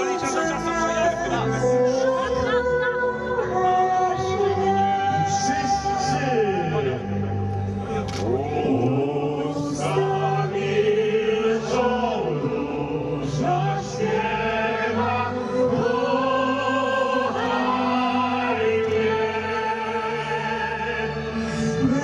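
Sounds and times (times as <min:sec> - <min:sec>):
instrumental backing music: 0:00.0 - 0:22.0
woman singing: 0:01.4 - 0:06.0
man singing: 0:08.0 - 0:10.6, 0:20.4 - 0:22.0.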